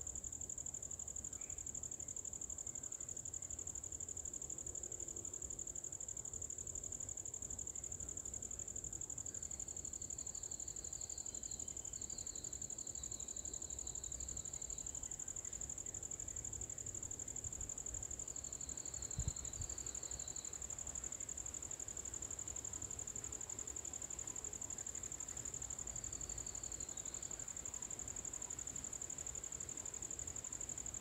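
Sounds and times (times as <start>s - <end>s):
high-pitched insect chorus: 0.0s - 31.0s.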